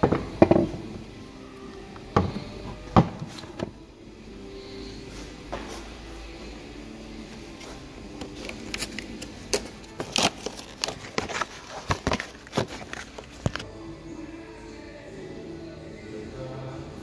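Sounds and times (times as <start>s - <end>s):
plastic parts clicking and scraping: 8.2s - 13.7s.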